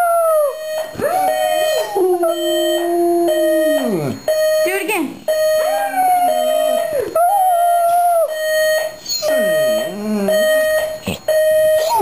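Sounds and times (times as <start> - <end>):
alarm clock electronic tone: 0.4 - 12.0
dog howling: 5.6 - 8.3, 9.1 - 10.4.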